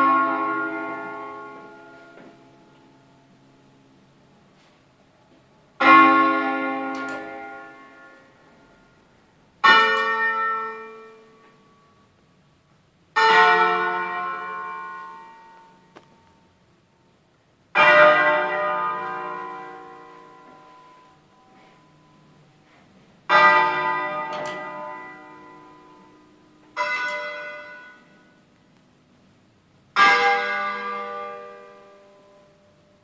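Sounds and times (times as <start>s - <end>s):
church bell strokes: 0.0s - 2.8s, 5.8s - 9.0s, 9.6s - 12.1s, 13.2s - 15.9s, 17.8s - 28.4s, 30.0s - 32.9s.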